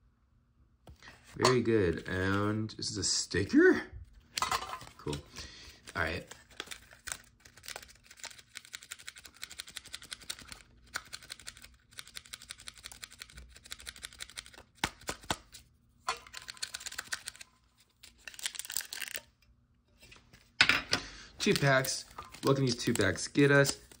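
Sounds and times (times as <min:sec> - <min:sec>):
foil wrappers crinkling: 0:16.2 - 0:19.3, 0:21.4 - 0:24.0
foil pack tearing open: 0:16.4 - 0:19.3.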